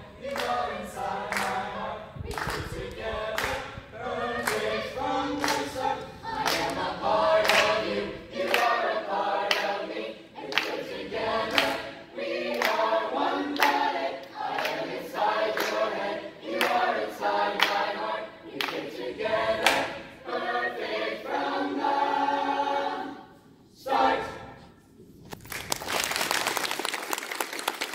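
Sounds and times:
choir singing a cappella: 0.0s - 24.9s
sharp hand claps: 2.3s - 2.7s, 5.4s - 5.7s.

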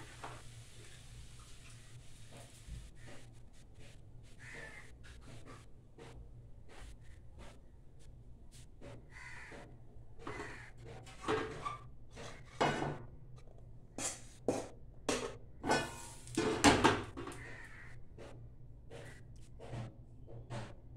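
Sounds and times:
crows cawing: 4.4s - 4.9s, 9.1s - 10.9s, 17.2s - 18.3s
metal pan and spoon clinking: 15.1s - 16.6s.

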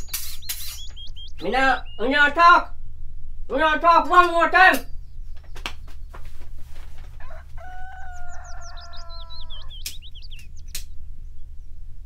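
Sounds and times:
high bird chirps: 0.0s - 2.6s, 7.0s - 11.6s
rooster crowing: 7.0s - 10.1s
sharp clicks: 9.7s - 11.0s.

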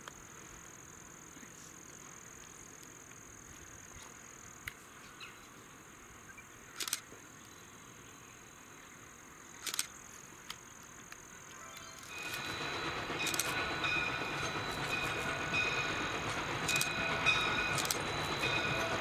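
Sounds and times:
faint high-pitched hiss: 0.0s - 15.9s
sharp crackling noises: 6.7s - 7.3s, 9.5s - 19.0s.

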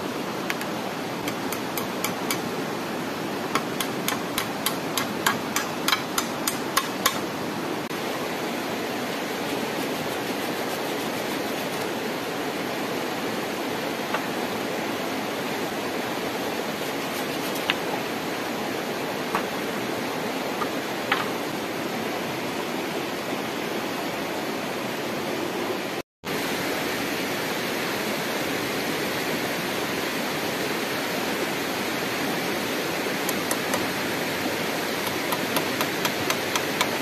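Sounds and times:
river rushing: 0.0s - 37.0s
hammer tapping on wood: 3.5s - 7.2s.

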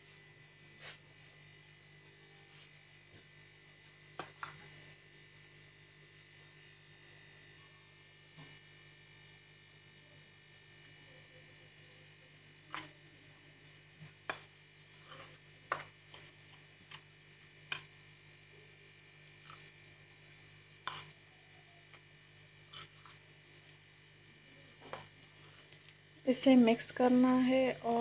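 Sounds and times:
low electrical hum: 0.0s - 28.0s
spoon stirring batter in bowl: 4.1s - 5.0s, 13.9s - 18.1s, 19.3s - 23.9s, 24.7s - 26.0s.

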